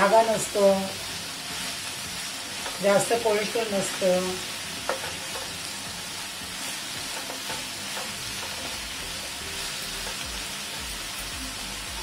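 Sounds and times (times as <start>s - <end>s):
onions sizzling in oil: 0.0s - 12.0s.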